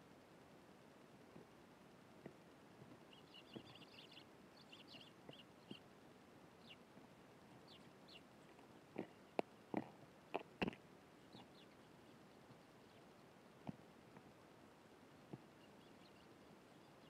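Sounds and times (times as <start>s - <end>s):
sparrows chirping: 3.1s - 5.9s, 7.5s - 9.9s, 11.2s - 13.4s, 15.4s - 17.0s.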